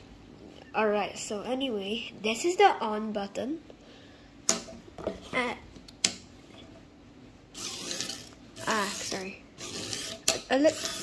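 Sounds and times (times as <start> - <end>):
small wheel motors whirring: 7.6 - 11.0.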